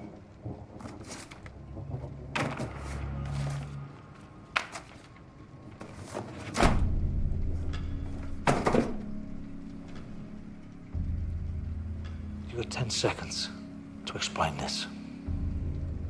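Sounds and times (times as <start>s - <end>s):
low film score drone: 6.7s - 16.0s.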